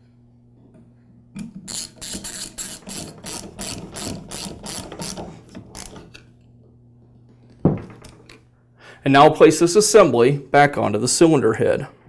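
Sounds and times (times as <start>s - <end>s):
ratchet wrench clicking: 1.7s - 5.2s.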